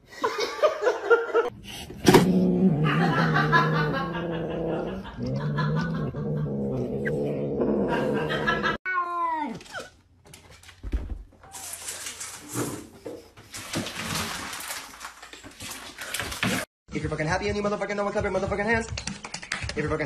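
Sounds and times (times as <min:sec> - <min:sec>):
cat growling yowl: 0:02.2 - 0:08.9.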